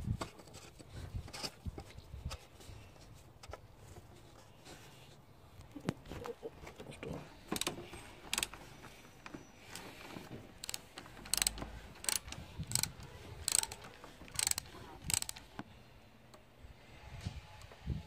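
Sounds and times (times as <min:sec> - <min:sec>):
ratchet wrench clicking: 0:08.3 - 0:08.5, 0:10.6 - 0:15.6.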